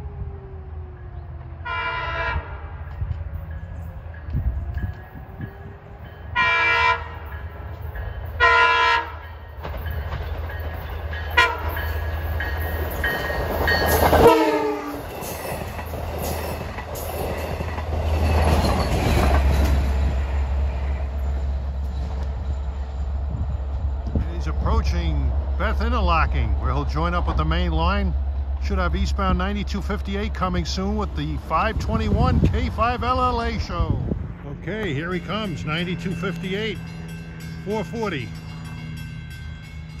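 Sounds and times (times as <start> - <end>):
train engine hum: 0.0 - 40.0
harsh train horn blasts: 1.6 - 2.8, 6.3 - 7.3, 8.4 - 9.3, 11.3 - 11.8, 14.2 - 15.1
train wheels clattering on rails: 9.3 - 22.9.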